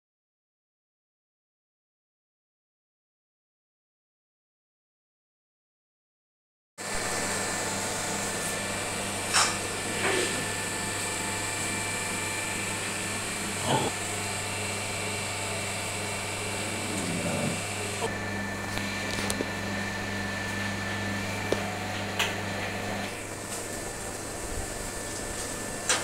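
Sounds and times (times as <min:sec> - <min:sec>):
appliance motor hum: 0:06.8 - 0:26.0.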